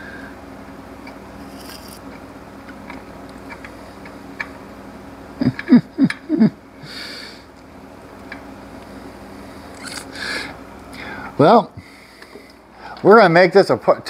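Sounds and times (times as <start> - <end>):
breathy exhale: 6.8 - 7.5, 9.9 - 13.0.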